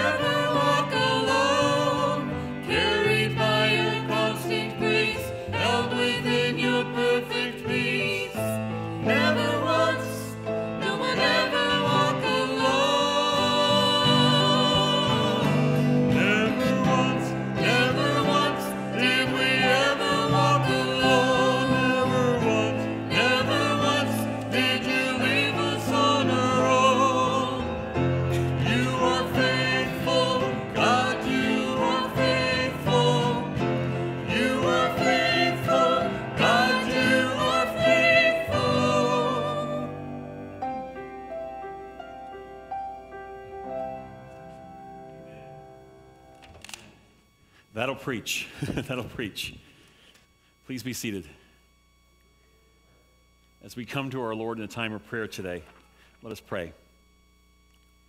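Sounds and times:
worship team singing: 0:00.0 - 0:41.0.

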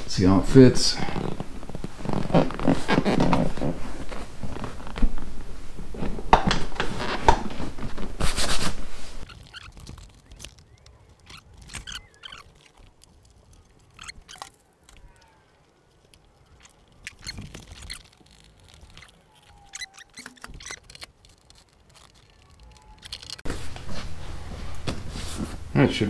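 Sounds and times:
faint short squeaks: 0:09.2 - 0:23.5.

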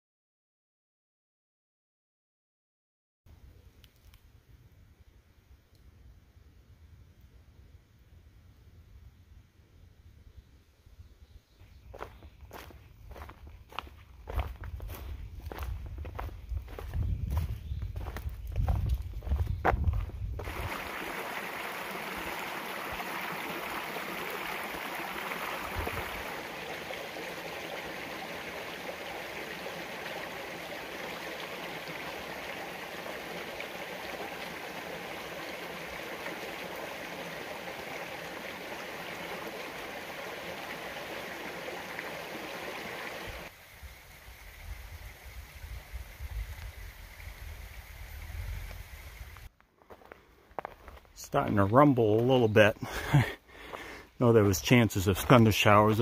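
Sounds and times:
stream trickling over pebbles: 0:18.7 - 0:50.0.

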